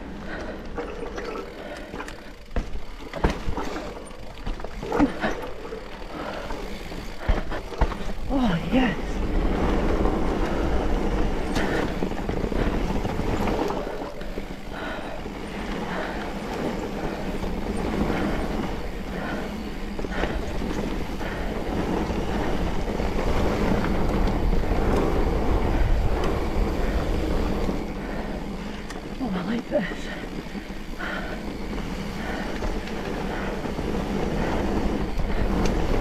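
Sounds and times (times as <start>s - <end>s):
bike knocks and rattles: 0.0s - 29.2s
bike tyres rolling on dirt: 0.0s - 36.0s
wind buffeting microphone: 6.2s - 29.1s.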